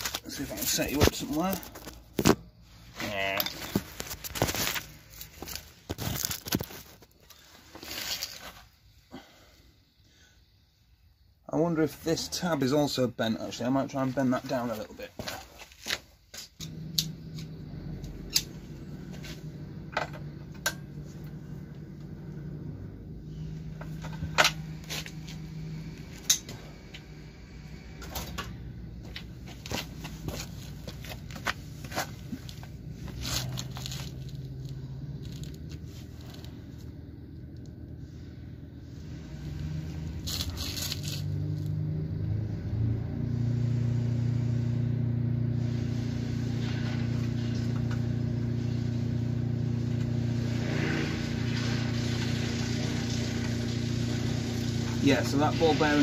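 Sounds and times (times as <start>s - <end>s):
steady engine drone: 16.6s - 56.0s.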